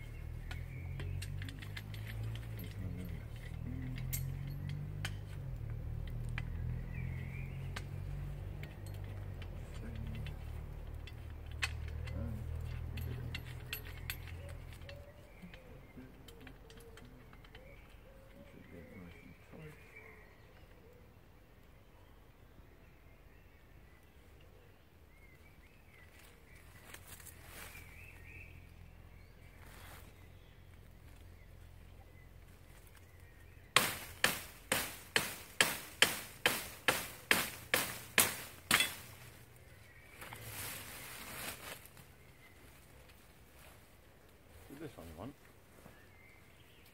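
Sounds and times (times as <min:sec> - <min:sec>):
faint woodland background: 0:00.0 - 0:46.9
shovel chopping into woody stem: 0:33.8 - 0:39.1.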